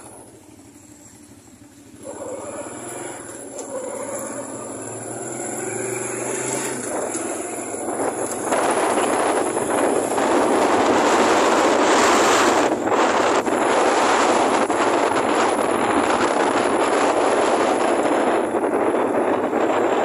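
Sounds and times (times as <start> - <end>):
motorbike engine and tyre noise: 0.0 - 20.0
wind on the microphone: 4.4 - 20.0.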